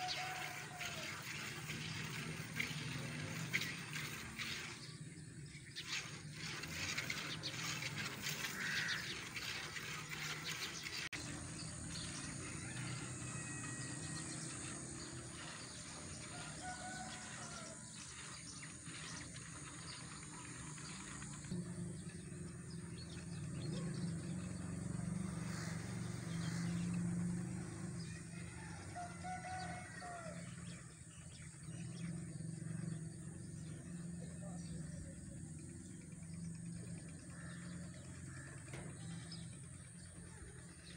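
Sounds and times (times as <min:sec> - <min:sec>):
birds chirping: 0:00.0 - 0:40.9.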